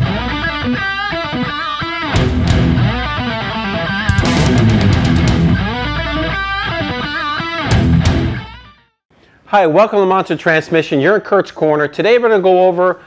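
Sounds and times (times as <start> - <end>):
guitar rock music: 0.0 - 8.9
sharp percussive hits: 4.1 - 7.1.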